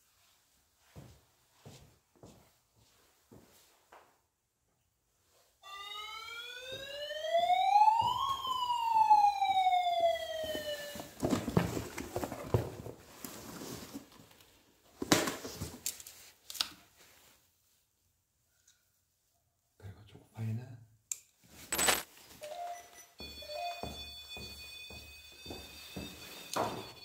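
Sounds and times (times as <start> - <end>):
rustling handling noise: 10.4 - 17.5.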